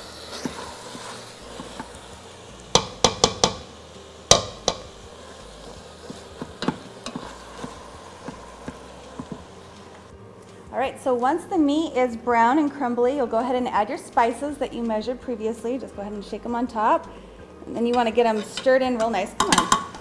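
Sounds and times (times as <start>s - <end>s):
meat sizzling in a pot: 0.0s - 20.0s
spatula scraping and knocking pot: 2.7s - 3.7s, 4.3s - 5.0s, 5.6s - 10.0s, 17.9s - 20.0s.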